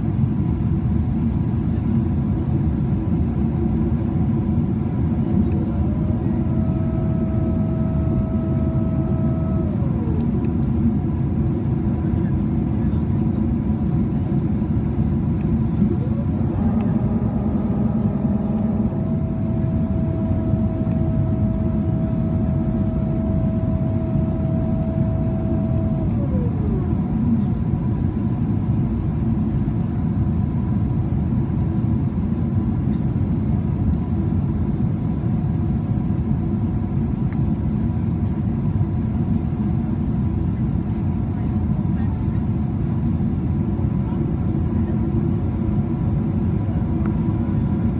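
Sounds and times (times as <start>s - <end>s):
airplane cabin noise: 0.0s - 47.9s
mechanical whine: 4.8s - 11.8s, 14.6s - 29.6s.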